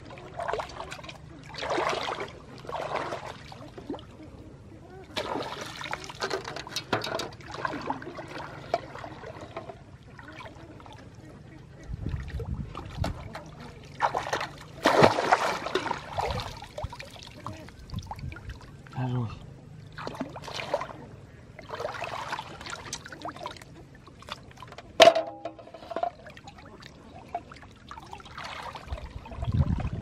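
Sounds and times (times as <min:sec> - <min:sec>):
water splashing and trickling: 0:00.0 - 0:04.2, 0:04.9 - 0:30.0
bait hitting water: 0:14.0 - 0:16.5
loud splash: 0:14.0 - 0:16.9.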